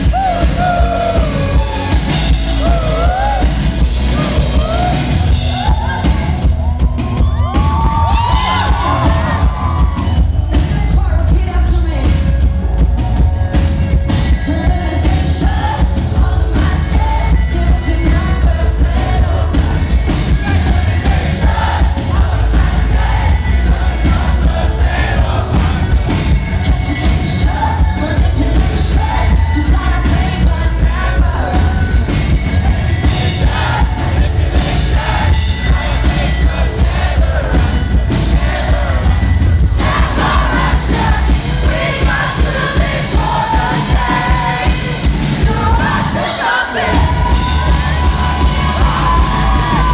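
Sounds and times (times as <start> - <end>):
crowd noise: 0.0 - 49.9
live pop-rock band: 0.0 - 49.9
woman singing: 10.5 - 12.4, 14.2 - 20.4, 26.2 - 33.9, 39.8 - 49.9.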